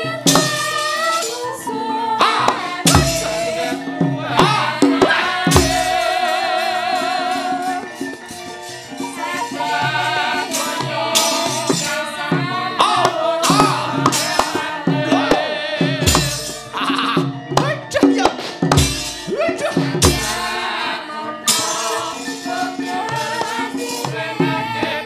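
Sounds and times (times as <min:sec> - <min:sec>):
gamelan ensemble playing: 0:00.0 - 0:25.0
hand drum strokes: 0:02.5 - 0:06.2, 0:10.4 - 0:20.6
metallic clattering strikes: 0:17.6 - 0:19.4.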